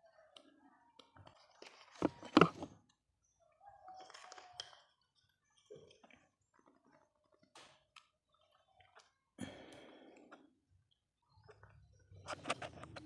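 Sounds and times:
rustling and clicks: 11.4 - 13.0.

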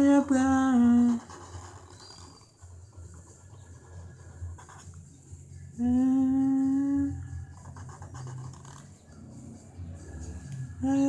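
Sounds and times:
person humming: 5.8 - 7.2.

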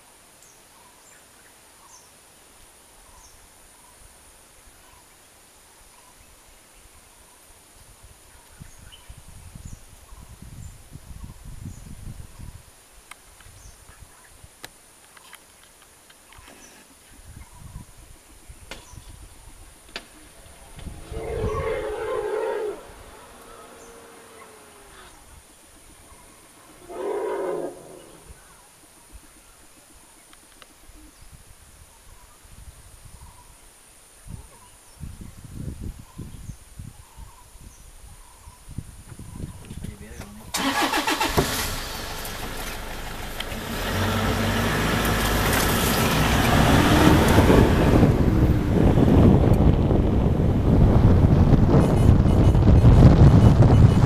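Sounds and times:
wind rumble on microphone: 7.8 - 14.6, 17.0 - 29.4, 30.9 - 40.5, 41.6 - 54.0
elephant calling: 20.1 - 25.4, 26.0 - 28.4
vehicle engine running: 40.7 - 54.0.

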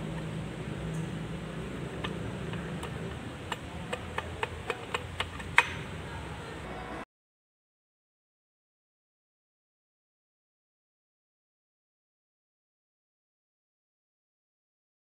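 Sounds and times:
low hum: 0.0 - 7.0.

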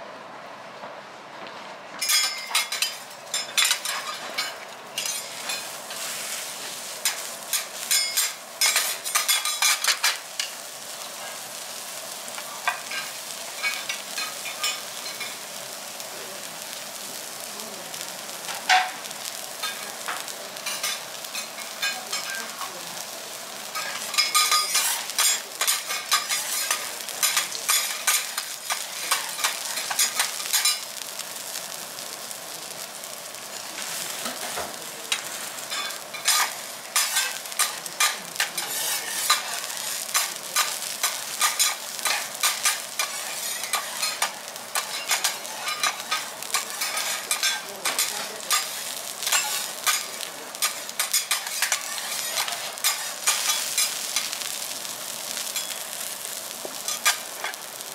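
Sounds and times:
meat sizzling on a griddle: 2.0 - 57.9.

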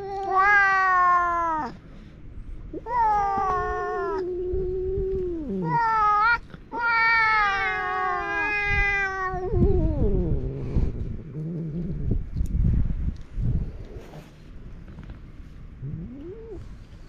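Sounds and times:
cats yowling: 0.0 - 1.8, 2.7 - 10.6.

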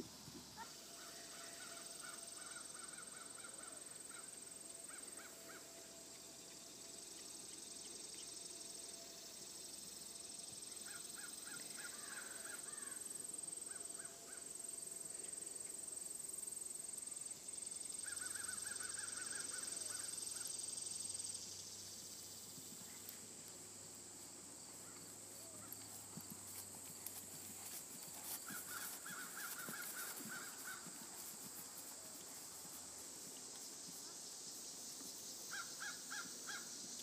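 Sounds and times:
faint hoofbeats on grass: 22.4 - 35.2.

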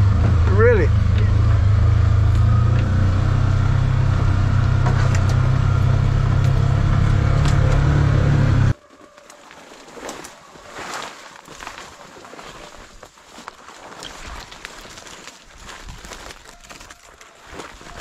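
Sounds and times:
vehicle engine humming: 0.0 - 8.8.

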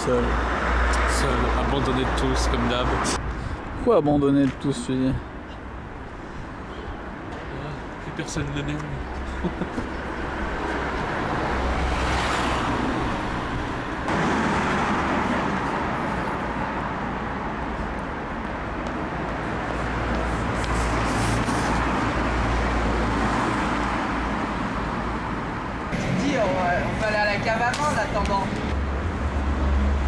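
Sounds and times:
traffic rumble: 0.0 - 30.0
car passing: 9.9 - 30.0.

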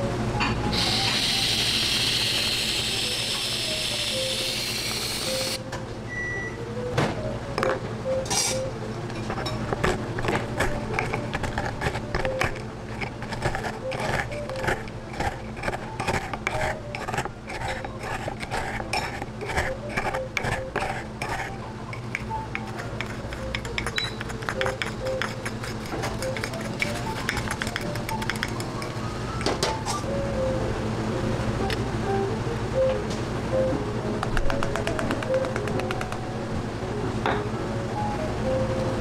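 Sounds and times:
whipped cream dispenser hissing: 0.7 - 5.6, 9.9 - 28.4
pestle grinding in wooden mortar: 9.1 - 29.0, 34.5 - 36.3.

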